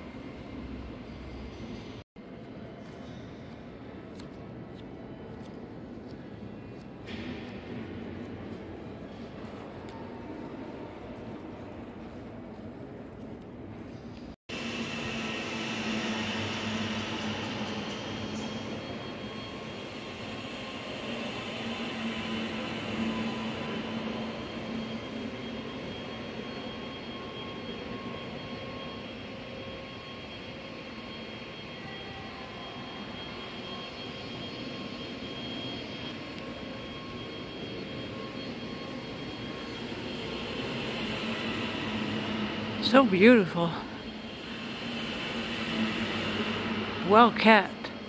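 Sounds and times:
rushing hall background noise: 0.0 - 48.0.

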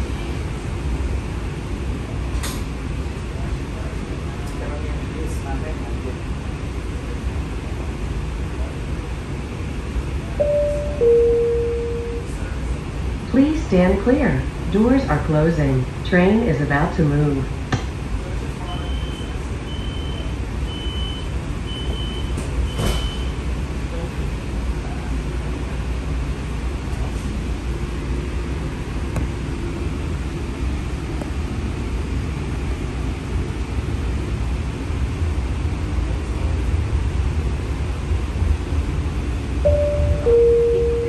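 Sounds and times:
streetcar running rumble: 0.0 - 41.0
high door-warning beeps: 10.4 - 12.3, 18.8 - 23.4, 39.7 - 41.0
two-note falling chime: 10.4 - 12.3, 39.7 - 41.0.

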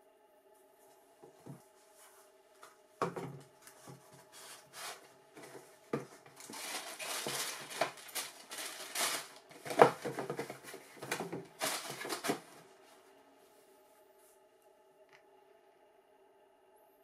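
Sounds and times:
cardboard knocks: 3.0 - 4.0
cardboard box handled: 3.0 - 12.6
tissue paper crinkling: 4.2 - 12.8.

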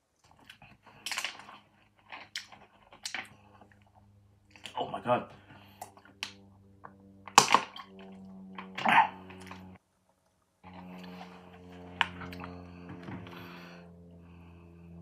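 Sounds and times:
low electrical hum: 0.0 - 15.0
breathy exhale: 12.5 - 15.0.

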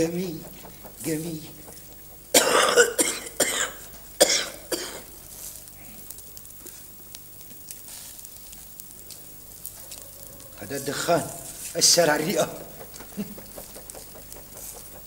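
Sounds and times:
meat sizzling on a grill: 0.1 - 15.0
man coughing: 2.3 - 5.1.

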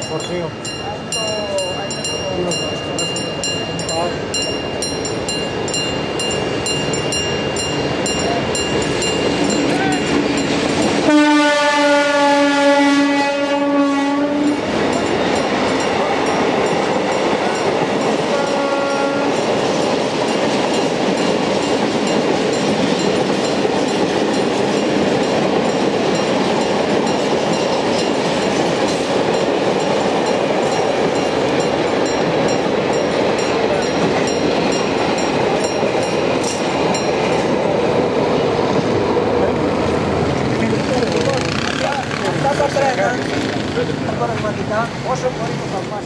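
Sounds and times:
train wheels rolling: 0.0 - 12.3, 14.0 - 46.0
diesel locomotives passing: 0.0 - 46.0
locomotive horn blasts: 11.0 - 14.6, 18.3 - 19.4.

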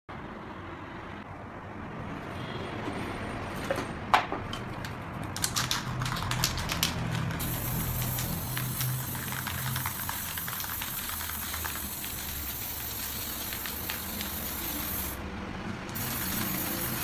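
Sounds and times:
spray can click: 4.8 - 15.2
spray can rattling when shaken: 4.8 - 15.2, 15.9 - 17.0
spray paint hissing: 5.4 - 15.2, 15.9 - 17.0.

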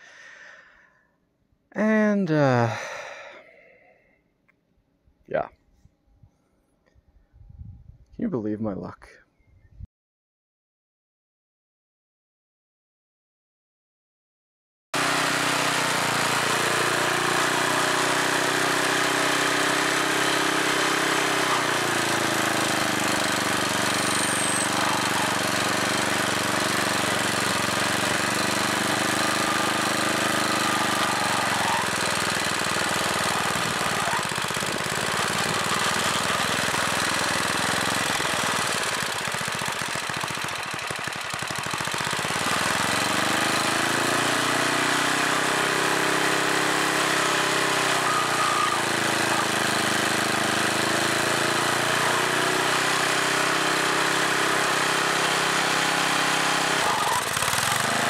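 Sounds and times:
small engine running: 15.0 - 58.0.

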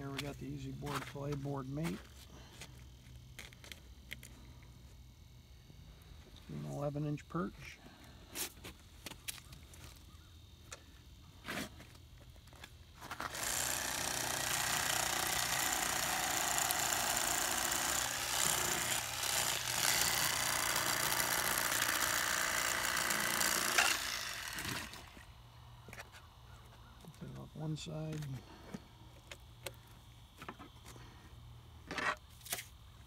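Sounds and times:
electric knife buzzing: 13.0 - 25.4.

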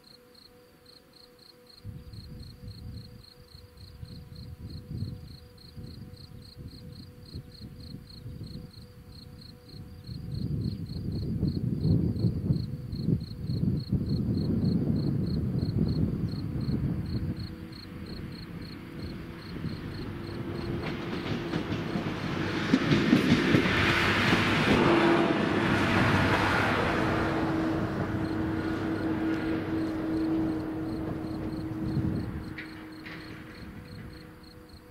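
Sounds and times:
diesel railcar engine hum: 1.8 - 34.9
train wheels rumbling: 10.0 - 34.9.

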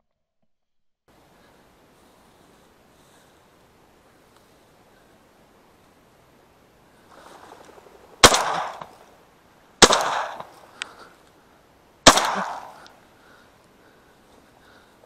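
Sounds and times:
shotgun shots echoing: 7.4 - 9.2, 9.8 - 10.8, 12.0 - 13.0.

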